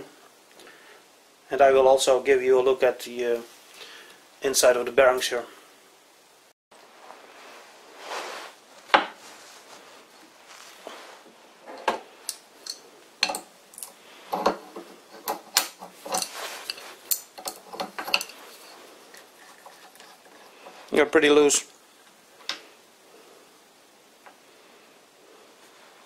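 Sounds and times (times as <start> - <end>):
wrench clinking on metal: 12.3 - 14.6, 15.2 - 18.4.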